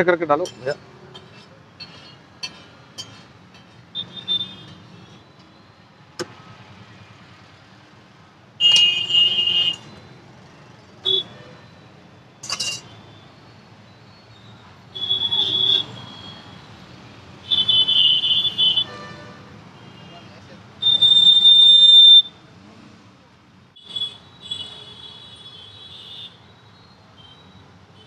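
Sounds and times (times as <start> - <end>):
street background: 0.0 - 28.0
spoon scraping steel plate: 0.4 - 4.1, 12.4 - 12.9.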